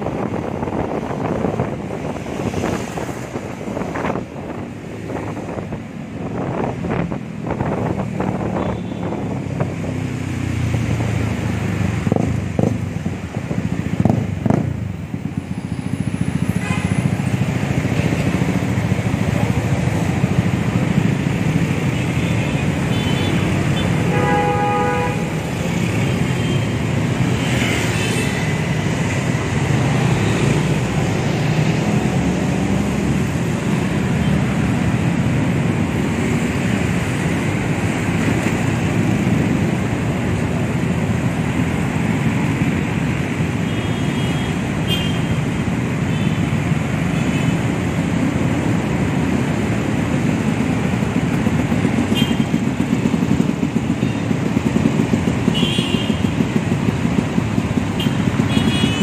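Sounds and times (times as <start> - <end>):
city traffic: 0.0 - 59.0
vehicle horn toots: 24.0 - 25.3.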